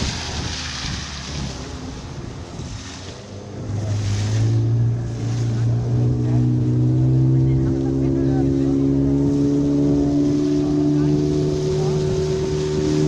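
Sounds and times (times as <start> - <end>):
wind rushing: 0.0 - 5.2
motorboat engine running: 0.0 - 13.0
water rushing past: 0.0 - 13.0.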